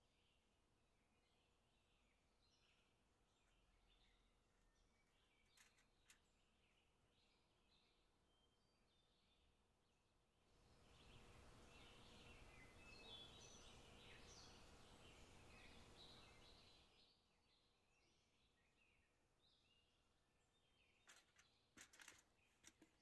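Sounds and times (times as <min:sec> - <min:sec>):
soft hiss: 0:10.6 - 0:17.0.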